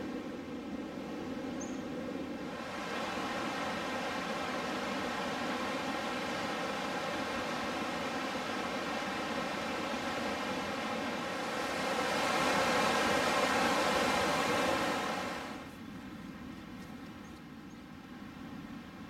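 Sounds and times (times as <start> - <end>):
river rushing over rapids: 2.5 - 15.7.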